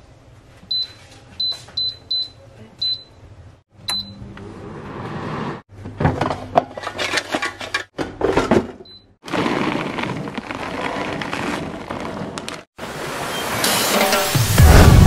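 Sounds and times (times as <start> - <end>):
air fryer beep: 0.7 - 3.2, 3.8 - 4.3, 8.8 - 9.2.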